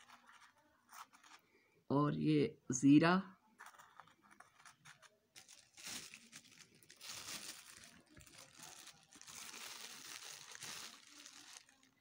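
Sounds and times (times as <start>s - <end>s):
crinkling and rustling: 0.0s - 1.5s, 3.6s - 12.0s.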